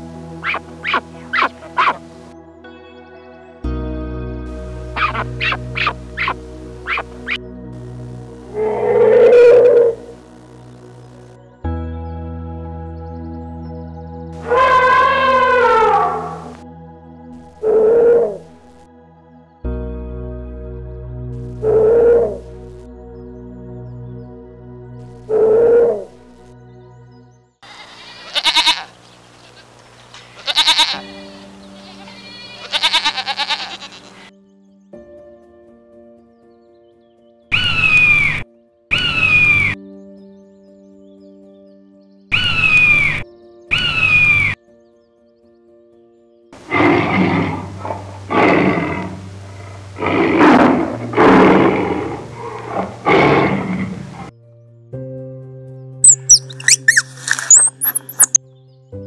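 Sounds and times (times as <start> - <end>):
soft background music: 0.0 - 27.6, 28.4 - 59.0
goats bleating: 5.0 - 7.0, 27.7 - 34.3
tiger roaring: 8.4 - 10.2, 14.4 - 16.6, 46.6 - 54.3.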